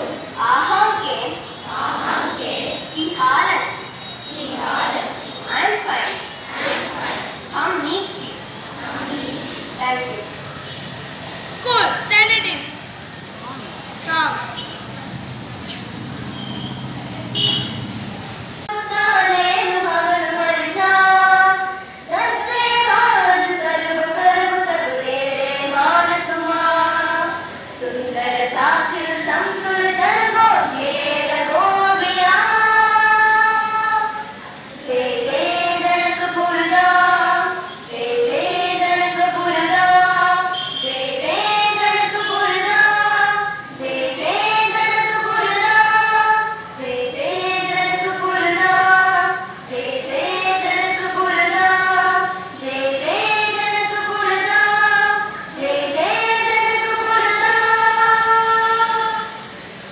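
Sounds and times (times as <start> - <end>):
children singing: 1.7 - 2.9, 6.5 - 7.4, 18.7 - 59.3.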